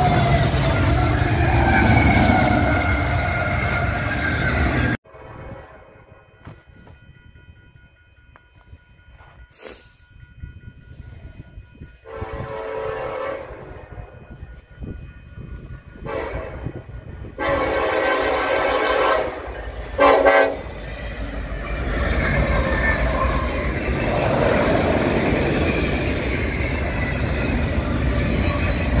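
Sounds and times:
train rumble and wheel clatter: 0.0s - 29.0s
locomotive horn blasts: 12.0s - 14.0s, 16.0s - 20.7s.

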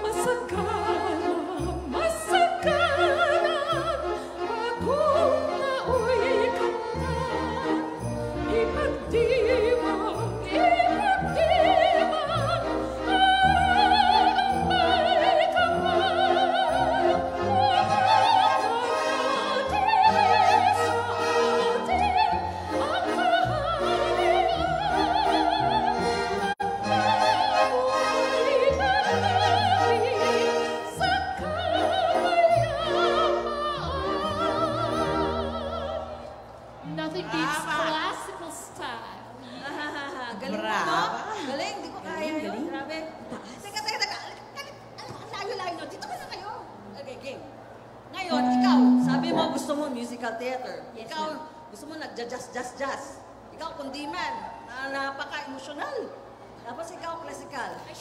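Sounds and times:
woman singing with vibrato: 0.0s - 36.3s, 48.3s - 50.3s
orchestra with strings: 0.0s - 38.4s, 47.6s - 51.0s.

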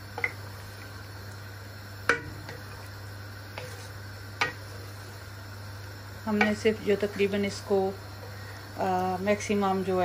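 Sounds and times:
steady low hum: 0.0s - 10.0s
wooden spoon stirring in a pot: 2.2s - 9.9s.

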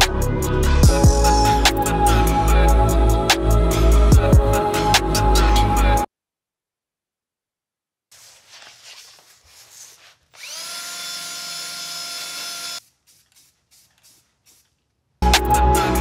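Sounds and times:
faint scraping and rubbing: 8.1s - 10.4s
cordless drill running: 10.3s - 12.8s.

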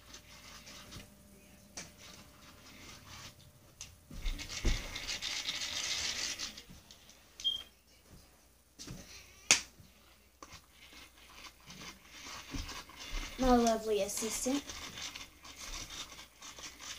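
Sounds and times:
toy ball fast scratchy whirring: 0.0s - 1.0s, 1.9s - 3.4s, 4.2s - 6.7s, 10.4s - 16.9s.

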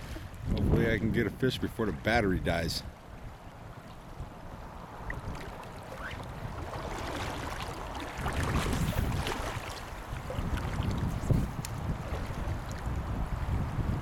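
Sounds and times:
wind buffeting microphone: 0.0s - 14.0s
river current rushing: 3.0s - 13.3s.

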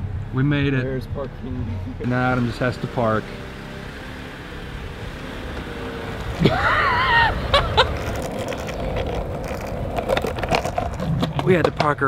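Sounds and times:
longboard wheels rolling on asphalt: 0.9s - 12.0s
person whooping: 6.4s - 7.9s.

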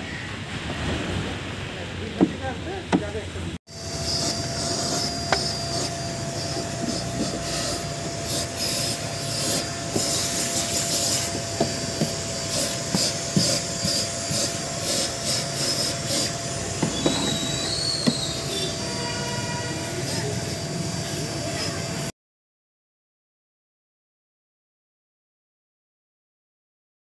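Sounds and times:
vacuum cleaner running: 3.7s - 22.1s.

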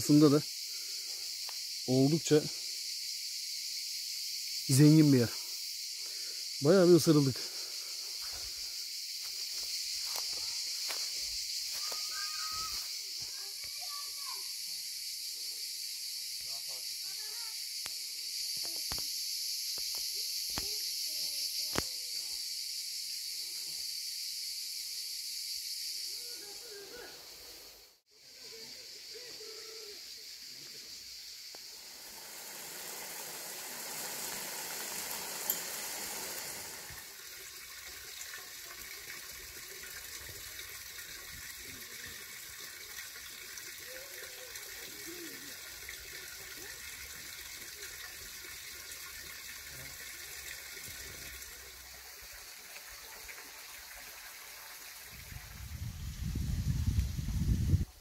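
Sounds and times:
stream water running: 0.0s - 29.3s, 30.1s - 58.0s
wind buffeting microphone: 55.2s - 57.9s.

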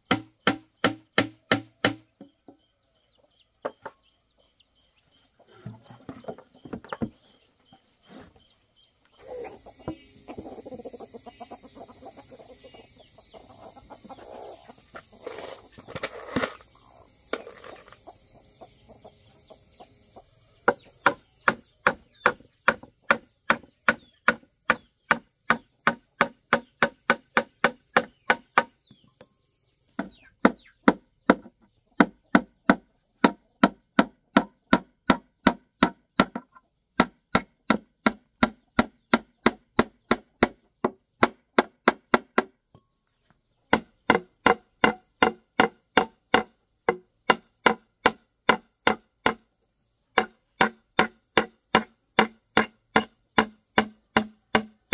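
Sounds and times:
chicken clucking: 2.2s - 22.3s, 36.4s - 36.9s.

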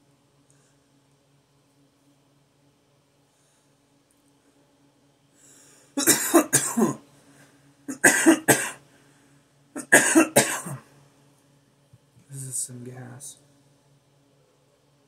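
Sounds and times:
man coughing: 6.0s - 7.0s, 7.9s - 8.8s, 9.8s - 10.8s.

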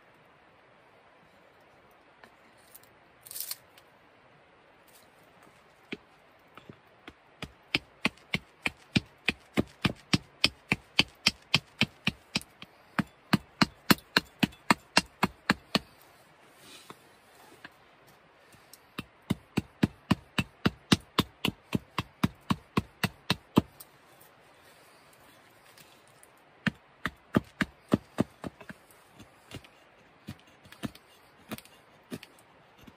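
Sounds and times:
hatchet chopping wood: 5.9s - 16.0s, 18.5s - 23.8s, 26.6s - 32.9s.

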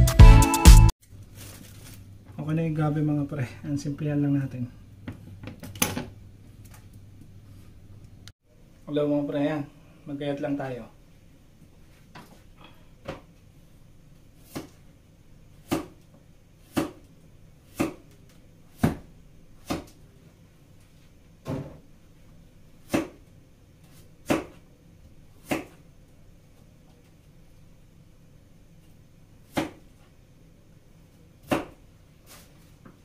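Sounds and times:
knife chopping on plastic board: 14.4s - 14.8s, 15.6s - 20.0s, 22.8s - 23.2s, 24.2s - 24.6s, 25.4s - 25.8s, 29.5s - 29.9s, 31.4s - 31.8s.

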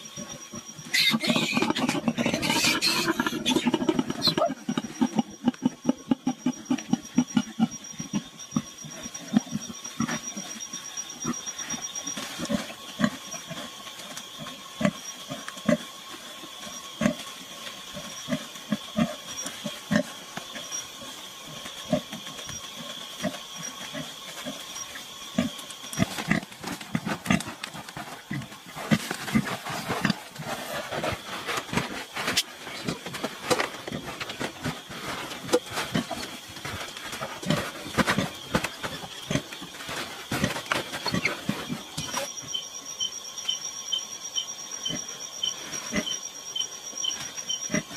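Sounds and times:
pig grunting: 0.9s - 7.7s
rustling: 25.4s - 42.2s.

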